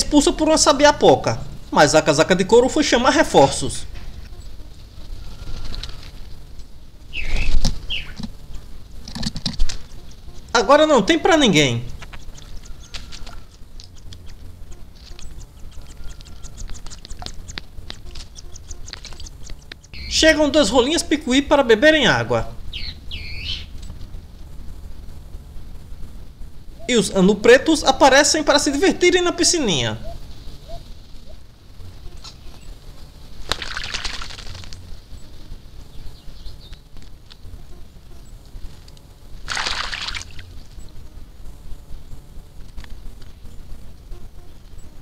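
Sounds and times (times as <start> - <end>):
faint ticks: 11.9 - 20.0, 38.2 - 39.1
bird splashing in water: 33.4 - 34.8, 39.4 - 40.4.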